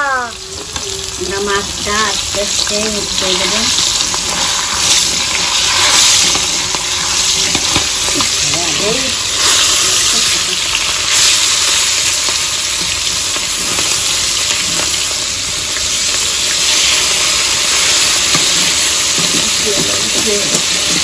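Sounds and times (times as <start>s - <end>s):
fish sizzling in hot oil: 0.0s - 21.0s
metal spatula scraping a pan: 3.2s - 11.7s.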